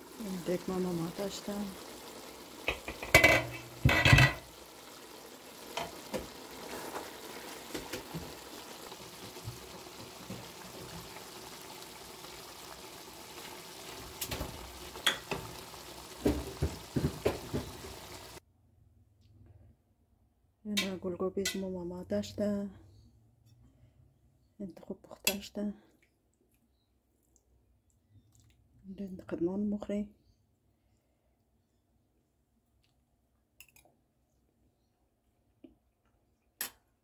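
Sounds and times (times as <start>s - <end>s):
pot simmering with low sizzle: 0.0s - 18.4s
spatula scraping pot: 2.7s - 4.6s.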